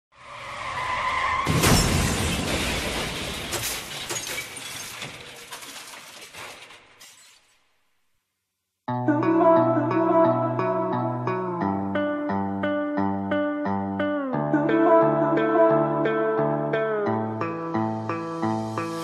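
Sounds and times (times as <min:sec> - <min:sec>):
sudden crash: 0:00.2 - 0:07.0
clatter of falling pieces: 0:01.5 - 0:07.6.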